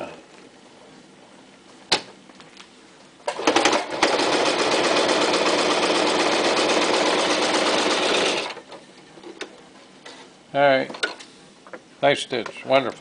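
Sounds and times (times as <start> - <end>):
sewing machine stitching: 3.3 - 8.8.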